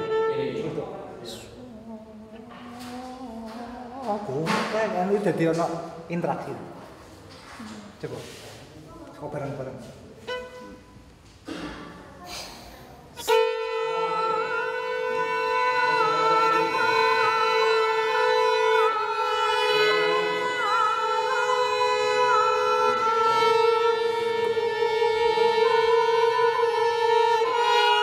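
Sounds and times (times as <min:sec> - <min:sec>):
ensemble playing held tones: 0:13.2 - 0:28.0.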